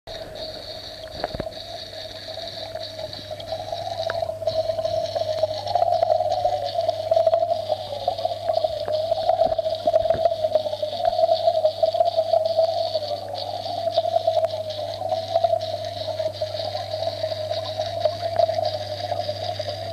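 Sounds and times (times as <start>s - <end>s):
air bubbles in water: 0.1s - 19.9s
aquarium equipment humming: 0.1s - 19.9s
faint clicks: 0.4s - 6.2s.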